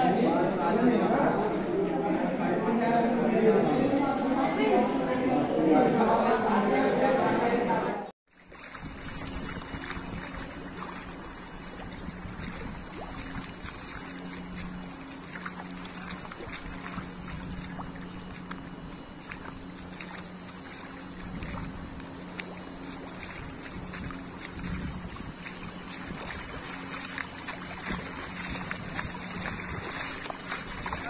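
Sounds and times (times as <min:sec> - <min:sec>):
low steady hum: 0:00.0 - 0:31.0
light ticks and splashes: 0:08.3 - 0:31.0
water washing on road: 0:08.4 - 0:31.0.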